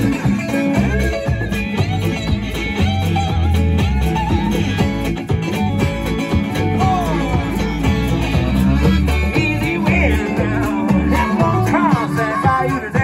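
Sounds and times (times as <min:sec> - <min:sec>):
electric bass: 0:00.0 - 0:13.0
resonator guitar: 0:00.0 - 0:13.0.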